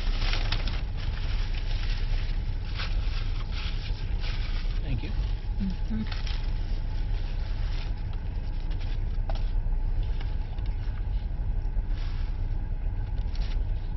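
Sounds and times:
car cabin engine and road noise: 0:00.0 - 0:13.9.

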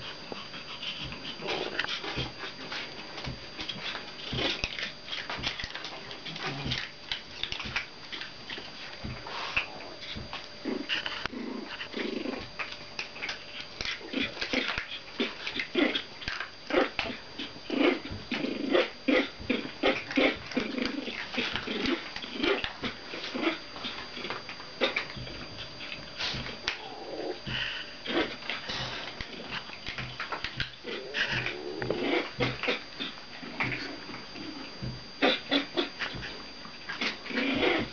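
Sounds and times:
puppies growling: 0:00.0 - 0:37.9.

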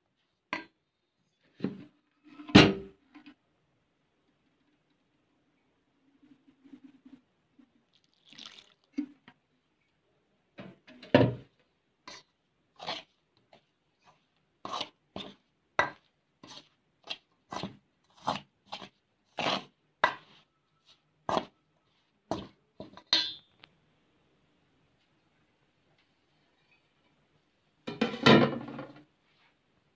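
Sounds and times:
metal spoon scraping a steel bowl: 0:12.1 - 0:13.1, 0:14.6 - 0:20.4.

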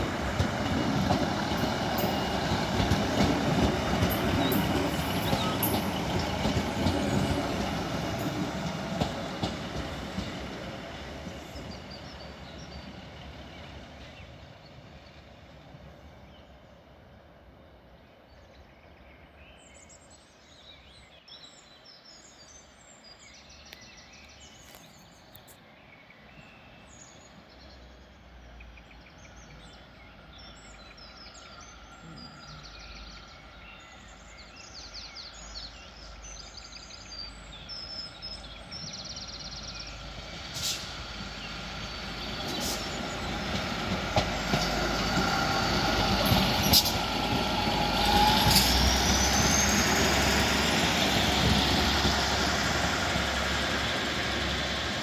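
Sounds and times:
train wheels clicking on rail joints: 0:00.0 - 0:14.3, 0:38.8 - 0:55.0
diesel train passing with whine: 0:00.0 - 0:21.2, 0:21.8 - 0:55.0
birds singing: 0:00.0 - 0:55.0.

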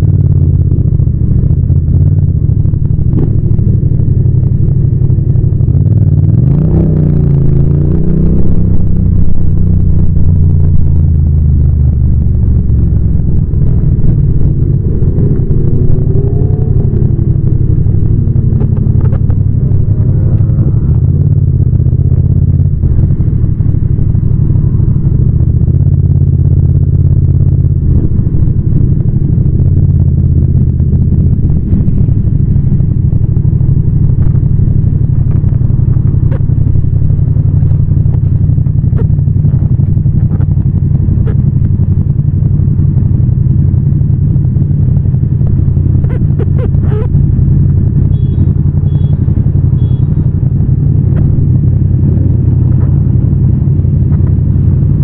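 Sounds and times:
motorcycle engine droning: 0:00.0 - 0:55.0
short high-pitched beeps: 0:48.1 - 0:50.3.

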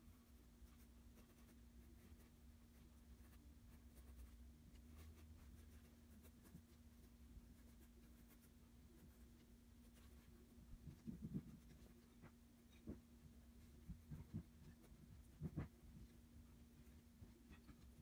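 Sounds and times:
low steady hum: 0:00.0 - 0:18.0
pencil scratching on paper: 0:00.6 - 0:13.0.

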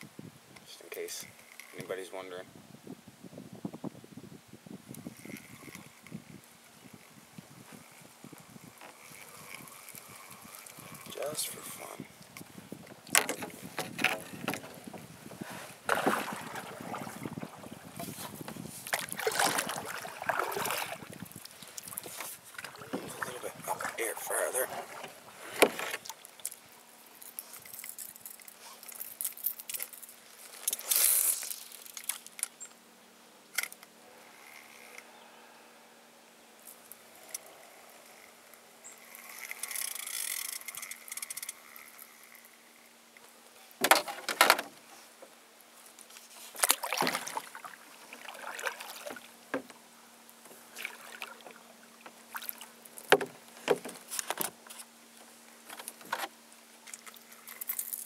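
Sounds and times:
fishing gear knocking and rattling: 0:08.7 - 0:15.0, 0:43.8 - 0:44.7.

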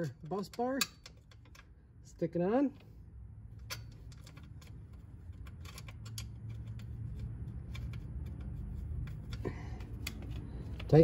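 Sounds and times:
low steady rumble: 0:00.0 - 0:11.0
small metal clicks and ticks: 0:03.5 - 0:11.0.

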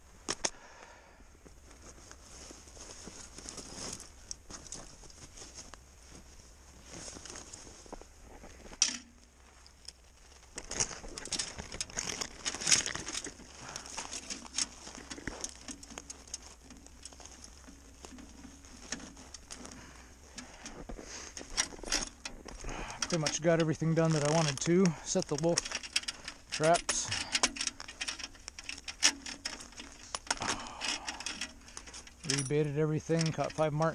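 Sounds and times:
needles and boughs rustling: 0:01.4 - 0:33.9
branches snapping: 0:08.7 - 0:32.2.

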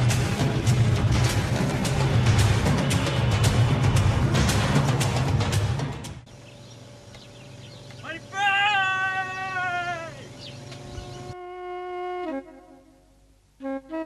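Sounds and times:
loud drum-heavy music: 0:00.0 - 0:06.2.

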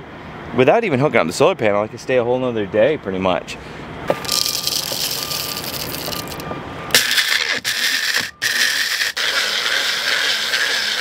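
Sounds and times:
coffee beans rattling: 0:04.2 - 0:06.4
blender motor grinding: 0:04.2 - 0:11.0.

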